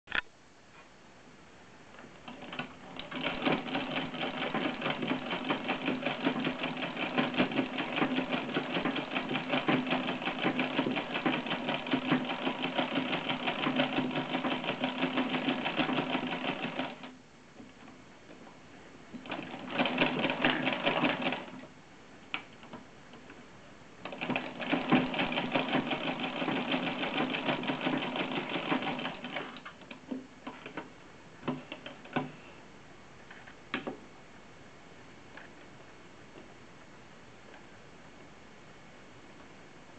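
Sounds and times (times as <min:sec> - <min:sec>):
sewing machine clattering: 0:02.2 - 0:17.1, 0:19.1 - 0:21.6, 0:24.0 - 0:32.4.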